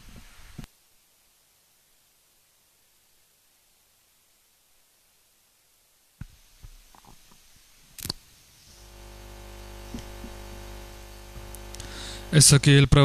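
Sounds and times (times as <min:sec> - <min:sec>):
sound system electrical hum: 0:00.0 - 0:13.0
microphone being handled: 0:09.5 - 0:12.3.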